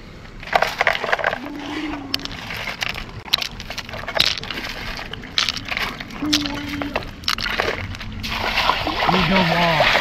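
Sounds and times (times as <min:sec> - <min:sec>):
pebbles and gravel rattling in pan: 0:02.1 - 0:08.7.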